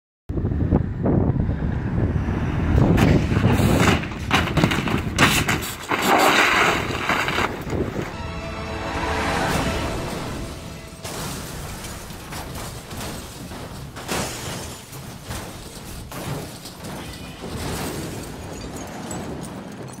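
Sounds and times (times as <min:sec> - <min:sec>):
car crashing and rolling: 0:02.8 - 0:08.2, 0:09.8 - 0:20.0
sudden impacts: 0:06.6 - 0:18.6.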